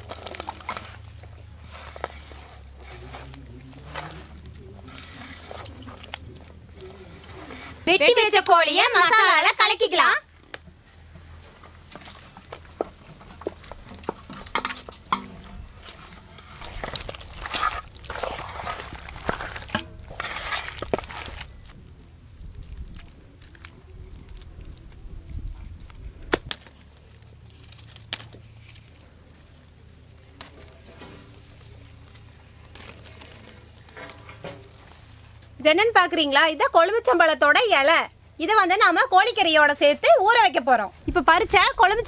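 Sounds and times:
hands squelching raw chicken: 0:00.0 - 0:07.8, 0:11.2 - 0:25.0.

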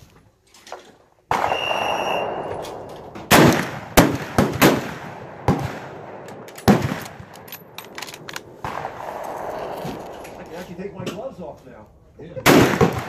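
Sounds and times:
rifle shots echoing: 0:01.3 - 0:10.9, 0:12.4 - 0:13.0.

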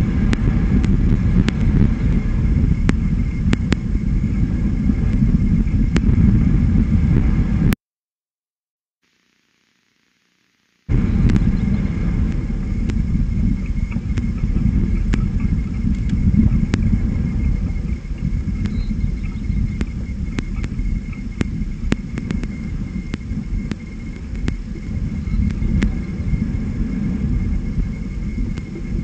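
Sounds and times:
loud uneven low rumble: 0:00.0 - 0:07.8, 0:10.9 - 0:29.0
faint scattered clicks: 0:17.5 - 0:26.2, 0:28.5 - 0:29.0.

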